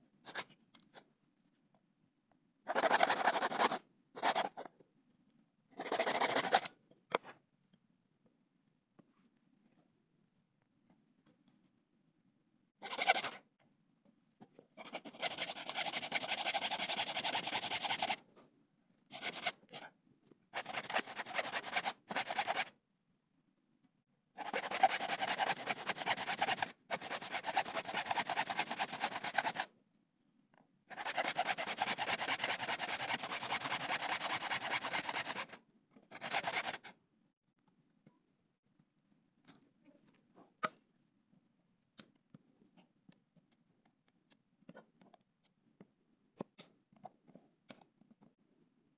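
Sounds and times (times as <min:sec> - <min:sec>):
hacksaw sawing wood: 0:30.9 - 0:35.5, 0:36.2 - 0:36.8.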